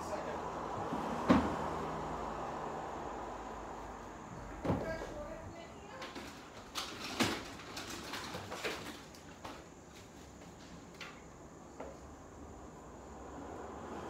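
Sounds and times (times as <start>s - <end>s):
knocks clicks and rustles: 4.6s - 12.0s.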